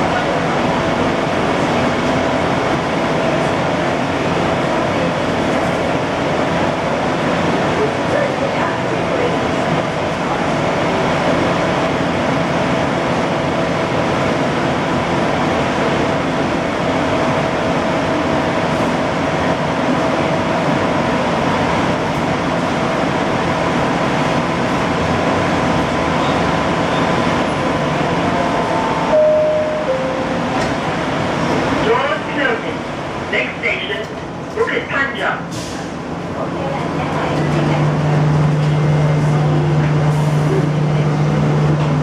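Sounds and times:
light-rail car air conditioning hum: 0.0 - 42.0
two-note falling tone: 29.1 - 30.7.

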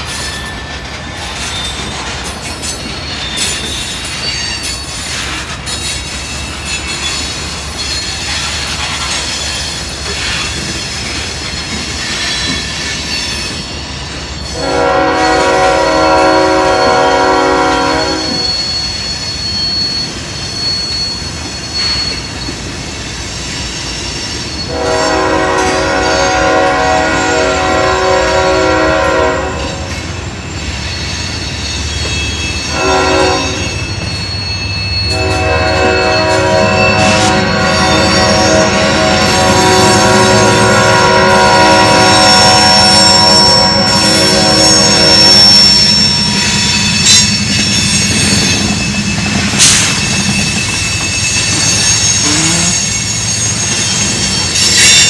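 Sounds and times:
freight train rolling past: 0.0 - 55.0
train wheels squealing: 0.0 - 55.0
locomotive horn blasts: 14.6 - 18.5, 24.7 - 29.9, 32.7 - 33.7, 35.1 - 45.4, 51.6 - 53.0.

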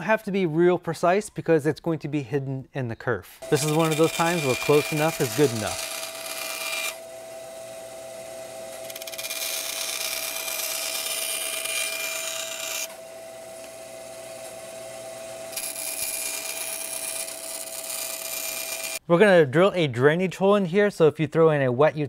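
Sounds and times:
bandsaw cutting plywood: 3.4 - 19.0.

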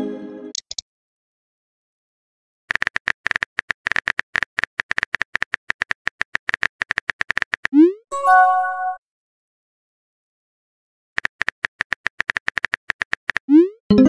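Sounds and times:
synthetic keyboard clicks: 0.5 - 0.8, 2.7 - 8.0, 11.2 - 14.0.

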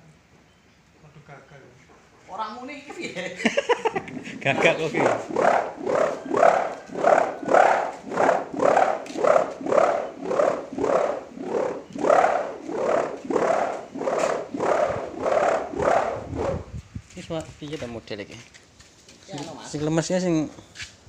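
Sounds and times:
whirled bow buzzing drone: 3.9 - 16.8.

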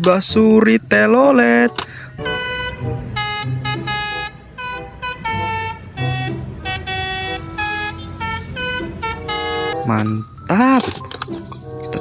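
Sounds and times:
low traffic noise: 0.0 - 12.0
multi-tone bus horn tune: 1.7 - 10.3.

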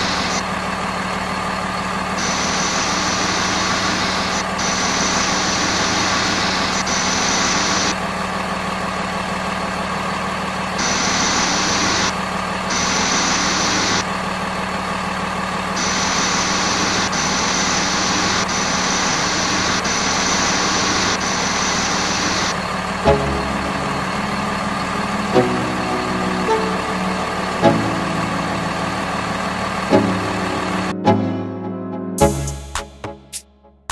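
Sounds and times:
high whine: 0.0 - 0.7, 1.8 - 8.1, 10.6 - 14.7, 15.3 - 31.0
toy truck idling hum: 0.0 - 31.0.

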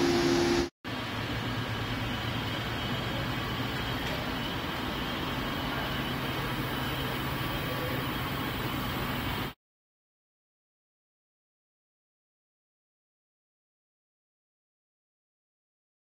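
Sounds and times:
faint high whine: 0.0 - 9.6.

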